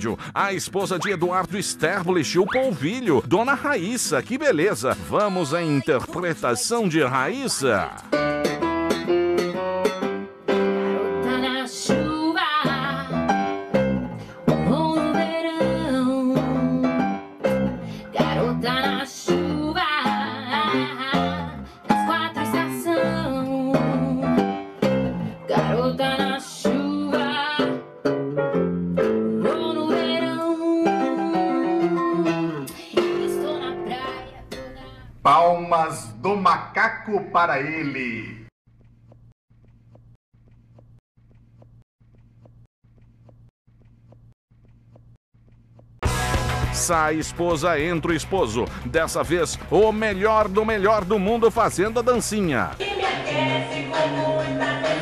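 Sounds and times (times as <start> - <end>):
woman singing with vibrato: 11.2 - 13.2, 14.6 - 17.0, 18.2 - 24.3, 25.5 - 27.8, 29.4 - 35.0, 52.8 - 55.0.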